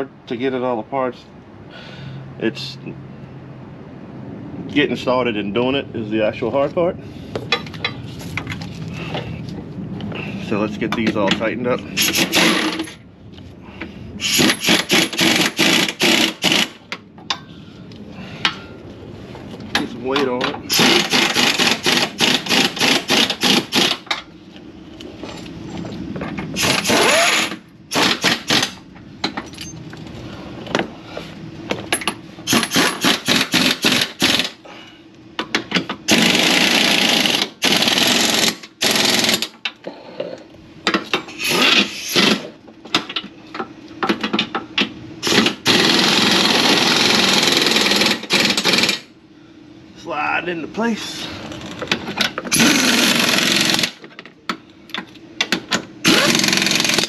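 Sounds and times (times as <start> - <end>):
power tool hammering bolts: 10.9 - 13.0, 14.2 - 16.9, 19.7 - 24.2, 26.4 - 29.7, 31.9 - 34.6, 35.4 - 39.8, 40.8 - 43.3, 44.0 - 49.1, 51.9 - 57.0.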